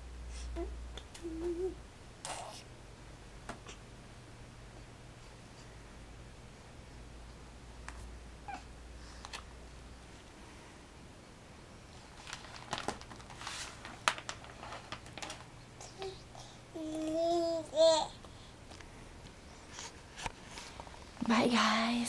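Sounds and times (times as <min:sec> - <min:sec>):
plastic sheet crinkling: 0:11.9 - 0:15.6.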